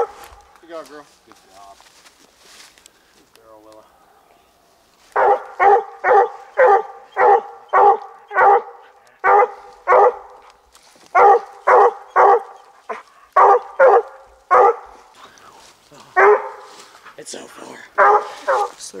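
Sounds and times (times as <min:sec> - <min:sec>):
dog barking loudly: 0:05.1 - 0:10.5, 0:11.1 - 0:15.1, 0:16.2 - 0:16.7, 0:17.9 - 0:18.8.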